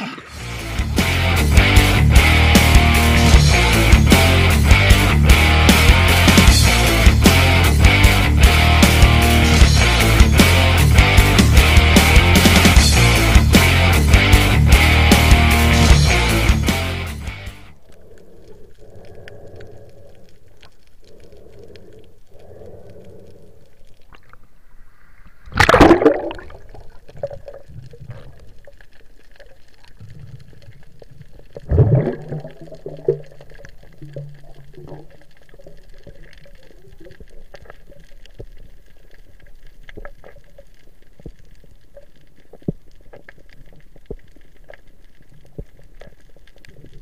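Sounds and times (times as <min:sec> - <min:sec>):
faint underwater clicks: 0:17.7 - 0:47.0
underwater rush of water: 0:17.7 - 0:47.0.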